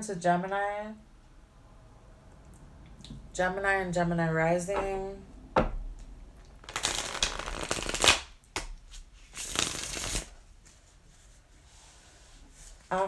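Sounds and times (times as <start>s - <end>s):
cards being shuffled: 6.6s - 10.3s.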